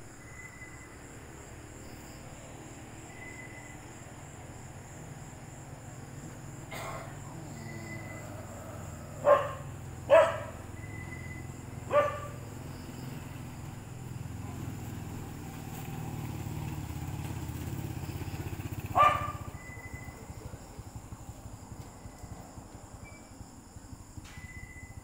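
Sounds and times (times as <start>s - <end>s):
dog barking: 6.7s - 11.0s, 11.7s - 12.5s, 18.9s - 19.7s.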